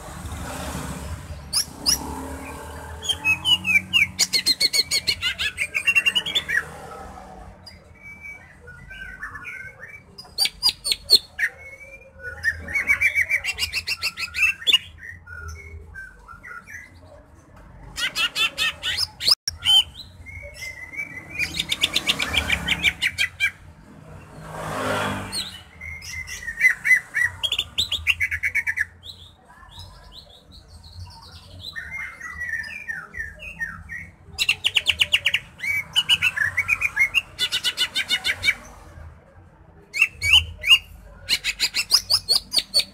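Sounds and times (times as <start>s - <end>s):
bird singing trills and whistles: 7.7s - 17.0s, 25.4s - 38.6s, 39.9s - 42.9s.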